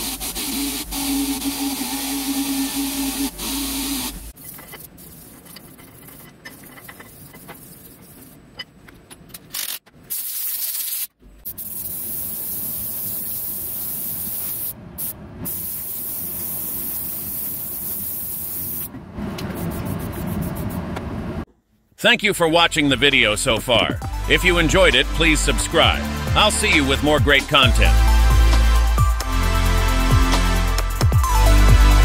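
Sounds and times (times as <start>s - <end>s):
spray gun hissing: 0.0s - 4.3s, 11.5s - 18.9s
handling noise with small clicks: 4.4s - 10.0s.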